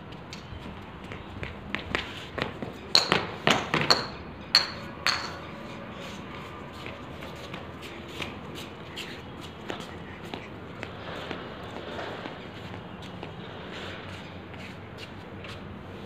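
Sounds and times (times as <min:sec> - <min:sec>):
ball knocking on tiled floor: 0:03.0 - 0:05.4.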